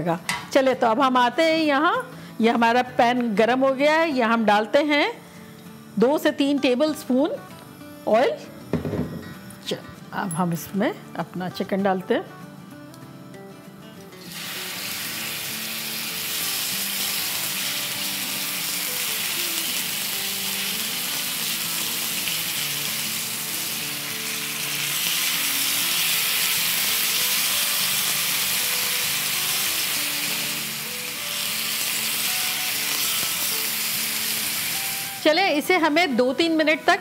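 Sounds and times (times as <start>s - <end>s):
chicken sizzling in hot oil: 14.2s - 35.3s.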